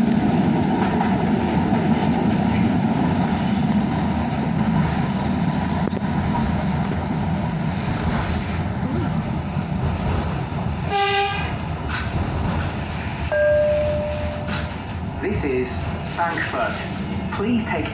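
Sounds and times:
train rumbling: 0.0s - 17.9s
train horn toot: 10.9s - 11.6s.

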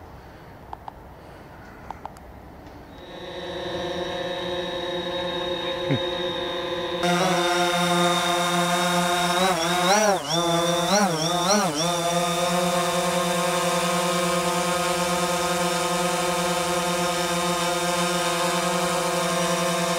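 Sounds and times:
drone propellers whining: 2.9s - 19.9s.

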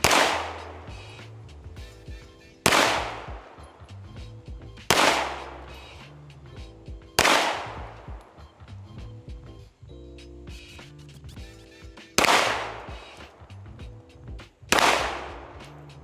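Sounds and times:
pistol shots: 0.0s - 0.8s, 2.6s - 3.6s, 4.9s - 5.6s, 7.2s - 7.9s, 12.2s - 13.0s, 14.7s - 15.6s
background music: 0.0s - 16.0s.

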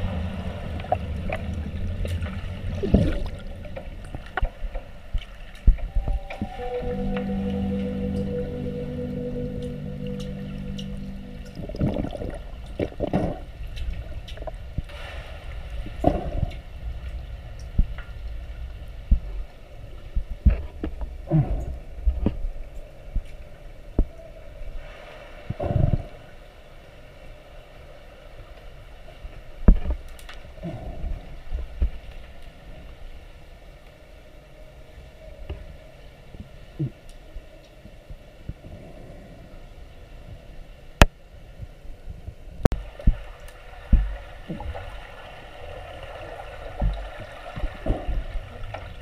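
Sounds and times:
bubbling gurgles: 0.0s - 5.1s, 11.5s - 14.8s
muffled underwater rumble: 0.0s - 26.4s, 29.2s - 49.0s.

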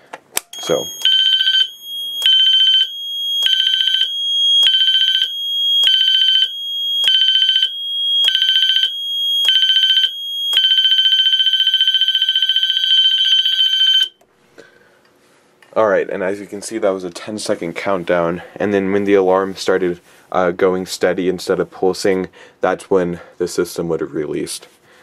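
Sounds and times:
fire alarm bell tone pulsing: 0.5s - 14.2s.

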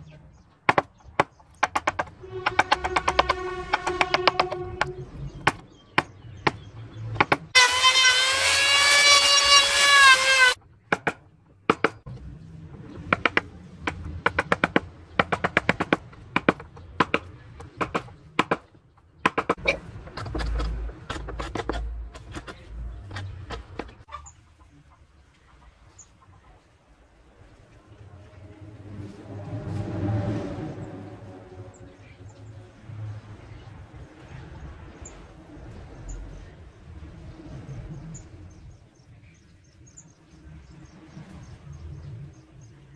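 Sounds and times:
loud drawn-out pitched call: 7.6s - 10.6s.

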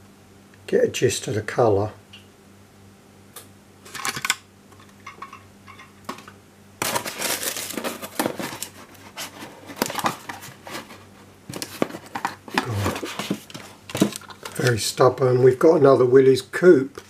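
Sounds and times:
paper packing rustling and crinkling: 6.8s - 15.7s
cardboard box handled: 7.4s - 14.7s.

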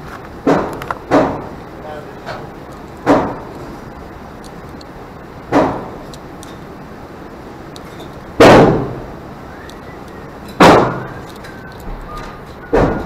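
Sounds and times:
gunshots with echo: 8.4s - 9.0s, 10.6s - 11.1s.

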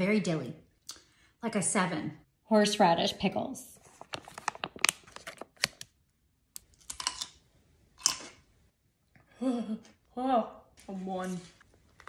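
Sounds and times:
plastic pouch crinkling: 3.8s - 5.9s
pickle crunching: 6.6s - 7.4s.

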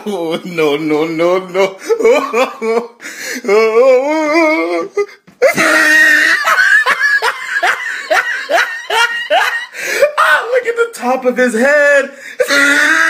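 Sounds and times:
people laughing: 5.4s - 10.2s.

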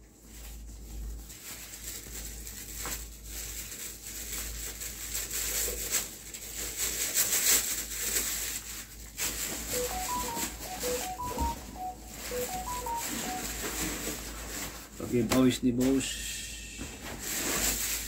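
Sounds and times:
packaging rustling and crinkling: 0.2s - 9.7s, 17.0s - 18.0s
short electronic beep tones: 9.8s - 13.6s.

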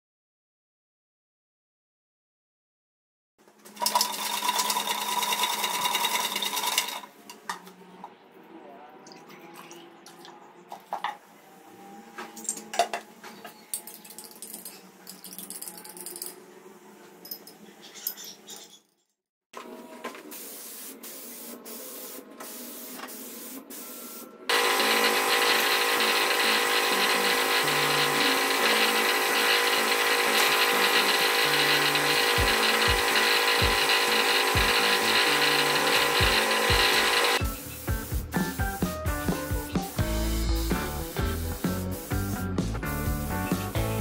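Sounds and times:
spray gun hissing: 20.3s - 44.0s.

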